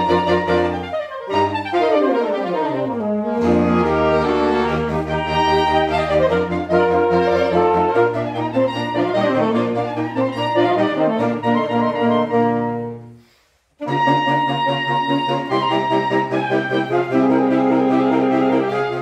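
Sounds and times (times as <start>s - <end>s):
saxophone ensemble playing chords: 0.0s - 19.0s.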